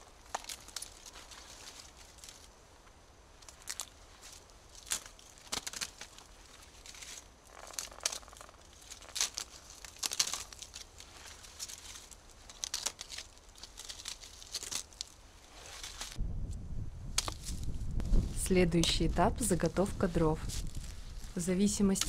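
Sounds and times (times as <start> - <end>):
bark tearing and crackling: 0.0 - 2.6, 3.4 - 16.2.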